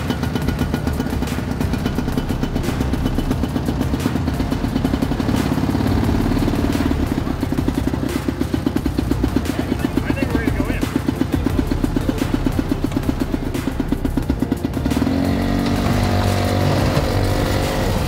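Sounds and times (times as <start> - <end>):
small engine running: 0.0 - 18.0.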